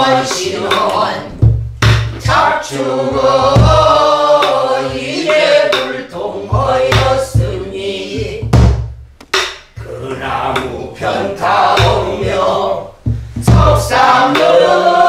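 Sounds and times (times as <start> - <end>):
deep drum strokes: 0.0 - 14.7
drumstick clicks: 9.2 - 9.8.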